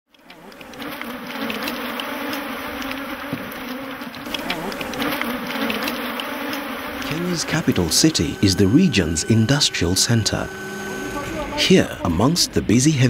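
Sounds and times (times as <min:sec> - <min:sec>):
honeybees buzzing: 0:00.1 - 0:13.0.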